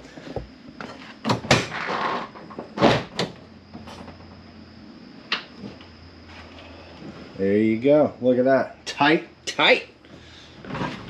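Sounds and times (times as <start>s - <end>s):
bumper scraping slide: 10.6s - 11.0s.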